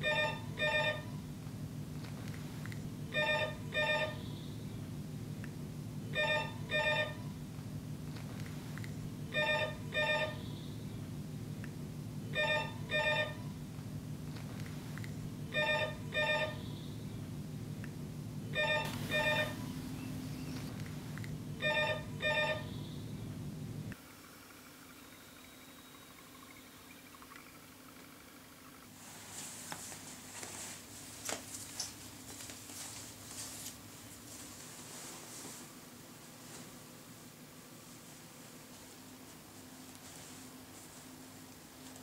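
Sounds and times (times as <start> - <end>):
telephone double ring: 0.0 - 1.1, 18.6 - 19.7
low steady hum: 0.0 - 42.0.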